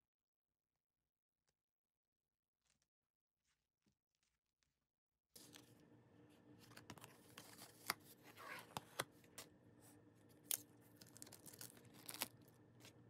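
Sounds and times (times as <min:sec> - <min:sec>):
steady low hum: 0:05.4 - 0:13.0
plastic sleeves crinkling: 0:10.3 - 0:13.0.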